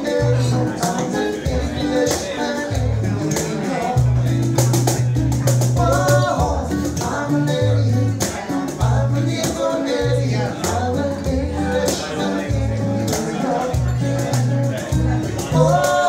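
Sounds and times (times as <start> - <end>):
low bass line: 0.0 - 16.0
men singing: 0.0 - 16.0
strummed acoustic guitar: 0.0 - 16.0.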